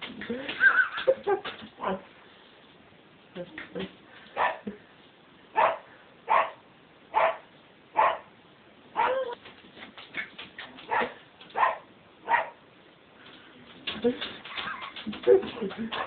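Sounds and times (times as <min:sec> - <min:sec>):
puppy barking: 0:04.4 - 0:04.6, 0:05.6 - 0:08.3, 0:09.0 - 0:09.4, 0:10.9 - 0:12.6
paws tapping on glass: 0:09.4 - 0:11.6, 0:13.7 - 0:16.0.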